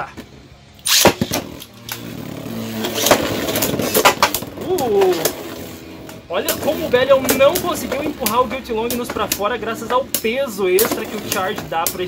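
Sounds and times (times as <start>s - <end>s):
spinning top launcher rip: 0.8s - 5.7s
spinning tops whirring and scraping: 0.8s - 12.0s
tops clacking together: 2.8s - 12.0s.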